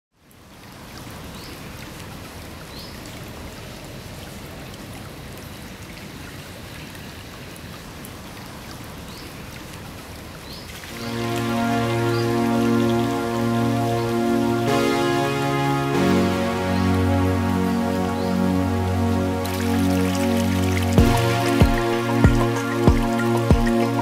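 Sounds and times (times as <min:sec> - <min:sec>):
stream running over gravel: 0:00.3 - 0:24.0.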